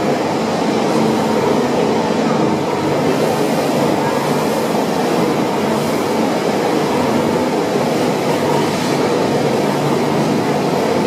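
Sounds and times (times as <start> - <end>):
loud machinery running: 0.0 - 11.0.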